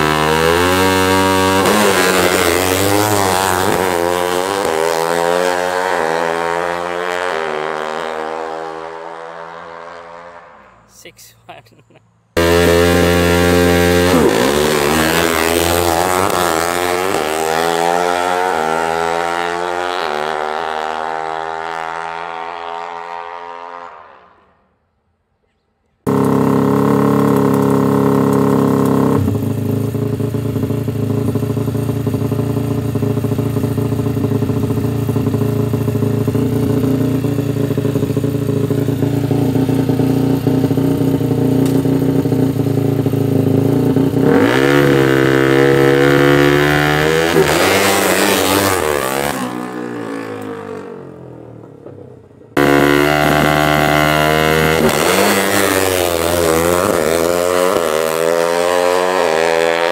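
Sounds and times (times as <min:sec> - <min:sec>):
motorcycle engine accelerating: 0:00.0 - 0:10.9, 0:11.8 - 0:24.6, 0:26.0 - 0:59.9
engine running steadily: 0:26.1 - 0:47.6.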